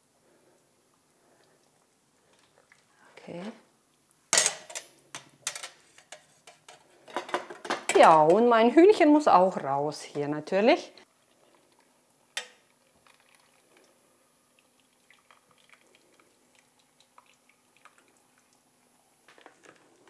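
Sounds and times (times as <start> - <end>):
faint dripping: 0.5 - 4.2, 11.0 - 19.3.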